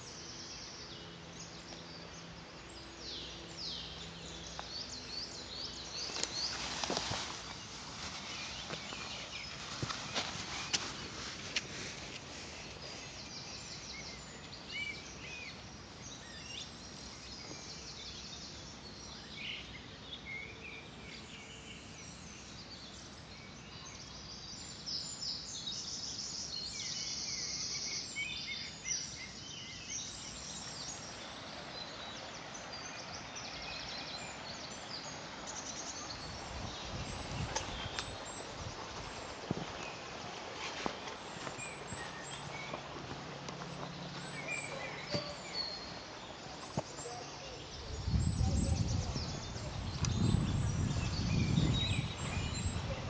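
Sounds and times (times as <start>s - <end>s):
songbirds chirping: 0.0s - 53.0s
steady background hiss: 0.0s - 53.0s
footsteps on leaf litter: 4.3s - 14.0s, 35.4s - 47.4s.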